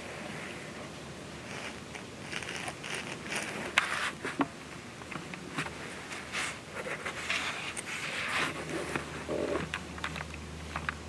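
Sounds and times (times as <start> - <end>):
clothing rustling and crackling: 1.4 - 4.6.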